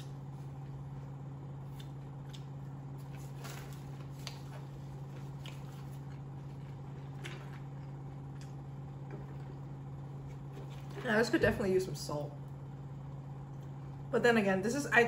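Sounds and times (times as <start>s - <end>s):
steady low hum: 0.0s - 15.0s
chewing: 4.2s - 10.5s.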